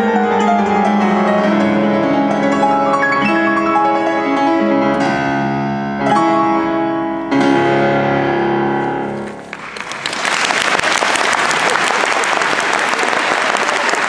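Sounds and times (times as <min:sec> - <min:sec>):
grand piano chord: 0:00.0 - 0:09.2
audience applause: 0:09.5 - 0:14.0.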